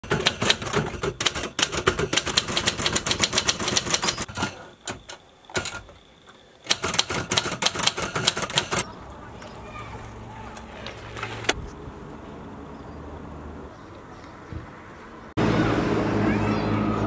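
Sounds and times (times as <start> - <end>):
typewriter key strikes: 0.0 - 4.3.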